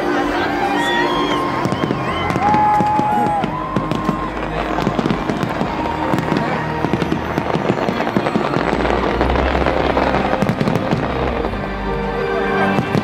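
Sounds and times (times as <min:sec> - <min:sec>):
crowd voices: 0:00.0 - 0:13.0
music: 0:00.0 - 0:13.0
fireworks crackling and popping: 0:01.2 - 0:13.0
fireworks low booms: 0:01.6 - 0:11.7.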